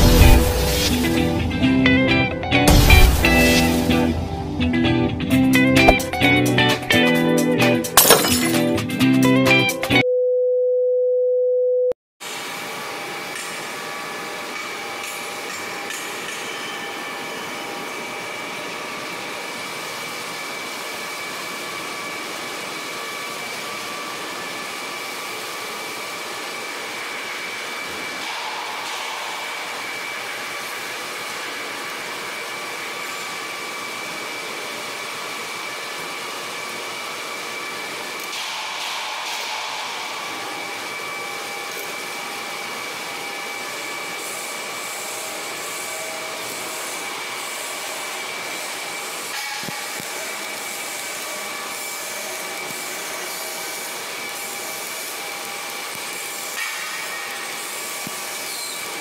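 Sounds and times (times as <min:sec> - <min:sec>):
machinery humming with high whine: 0:12.3 - 0:59.0.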